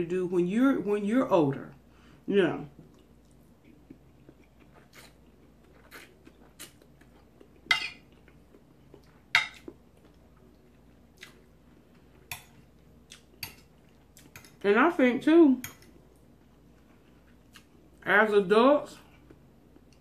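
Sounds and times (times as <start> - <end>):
person chewing: 2.8 - 14.6, 15.8 - 18.0
fork clinking and scraping on plate: 7.7 - 8.1.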